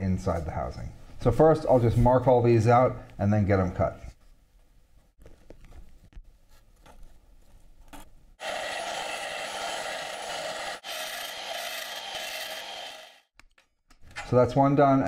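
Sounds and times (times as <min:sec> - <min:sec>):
cutting tool scraping through steel: 0:08.4 - 0:13.2.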